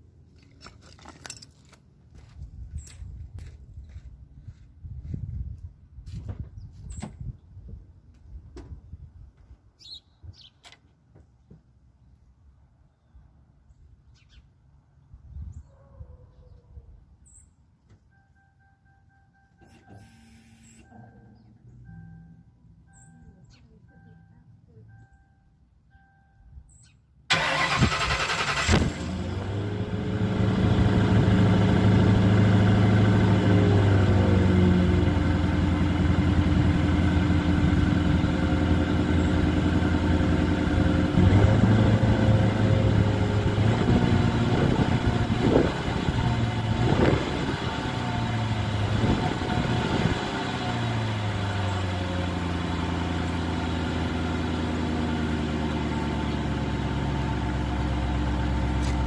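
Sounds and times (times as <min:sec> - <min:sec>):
car engine starting: 0:27.3 - 0:59.0
car exhaust idling and revving: 0:27.7 - 0:59.0.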